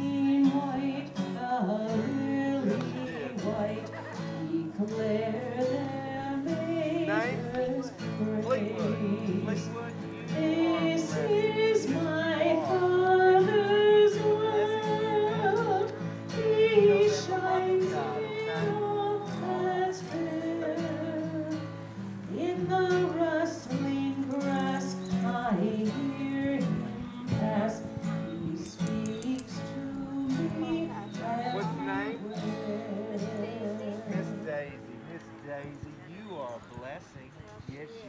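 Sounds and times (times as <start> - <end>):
woman singing a hymn: 0.0 - 34.5
acoustic guitar: 0.0 - 38.0.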